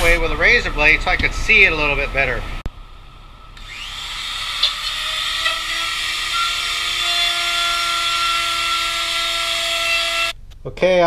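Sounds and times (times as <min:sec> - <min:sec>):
electric router whining: 0:03.6 - 0:10.4.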